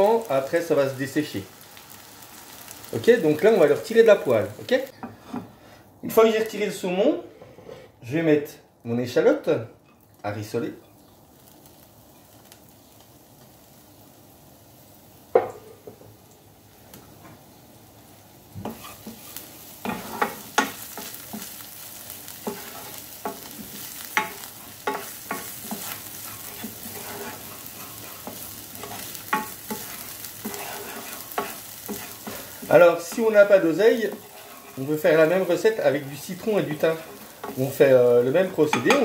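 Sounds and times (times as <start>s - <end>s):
shallot sizzling in hot oil: 0.0s - 5.4s, 9.8s - 39.0s
wooden spoon scraping a pan: 4.9s - 5.6s, 7.2s - 8.0s, 18.6s - 39.0s.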